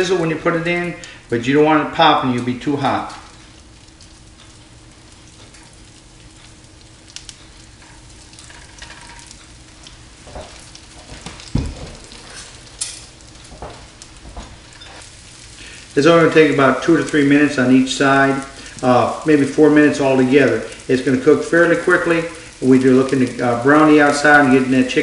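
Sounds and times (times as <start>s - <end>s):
cutlets sizzling in skillet: 2.2s - 25.0s
knocks: 11.2s - 12.1s.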